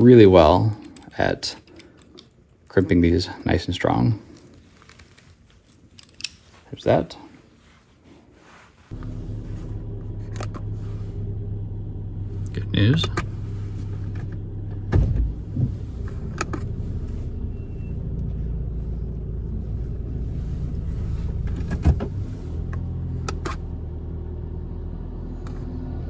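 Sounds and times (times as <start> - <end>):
car engine hum from inside cabin: 8.9 - 26.0.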